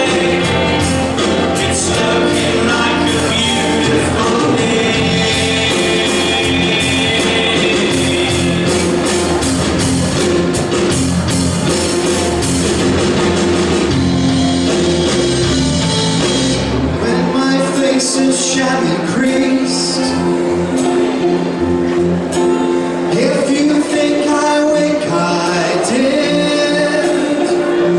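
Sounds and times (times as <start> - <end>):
choir singing a cappella: 0.0 - 8.9.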